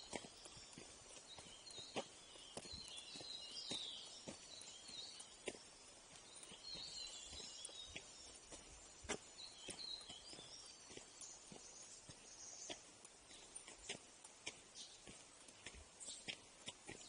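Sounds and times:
footsteps on dirt trail: 0.0s - 17.0s
small birds chirping: 0.0s - 17.0s.

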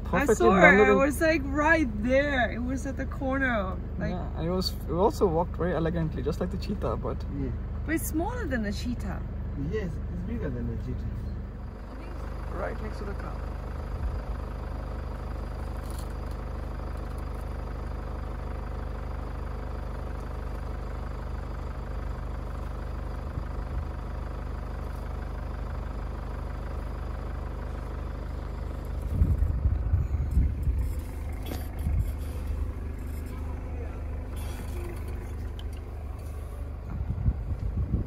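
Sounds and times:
vehicle engine idling: 0.0s - 38.0s
uneven low rumbling: 22.0s - 38.0s.

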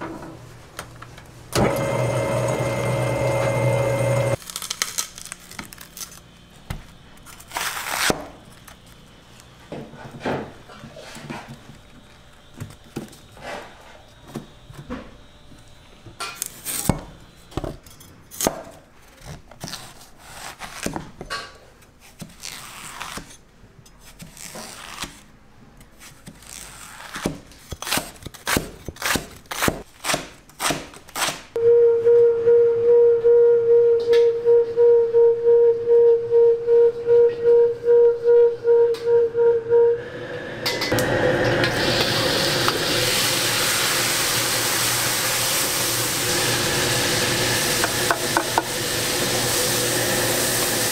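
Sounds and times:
loud pulsing tone: 31.6s - 40.9s.

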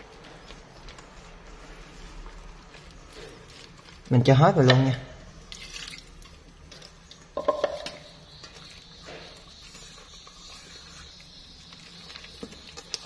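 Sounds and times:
knock against metal bowl: 7.4s - 8.0s.

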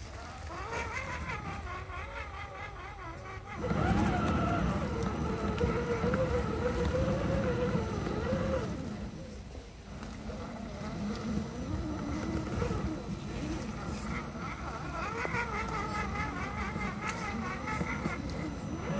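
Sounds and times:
rc truck motor whining: 0.0s - 18.9s.

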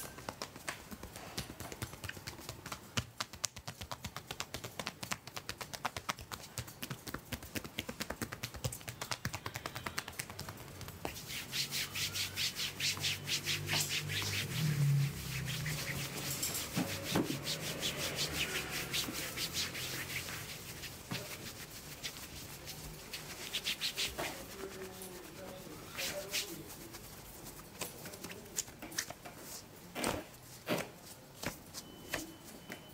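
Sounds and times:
hands tapping on a back: 0.0s - 11.3s
palms rubbing shirt fabric: 0.0s - 32.6s.

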